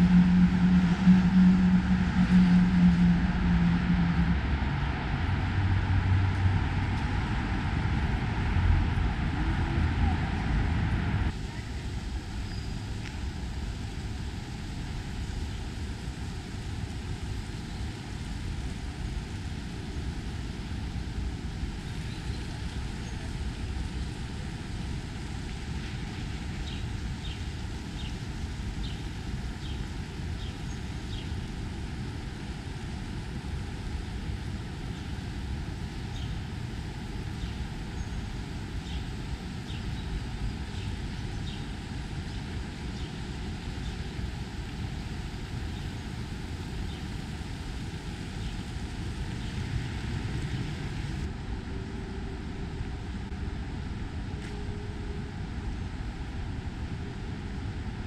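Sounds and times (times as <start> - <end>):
road traffic rumble: 0.0 - 14.5.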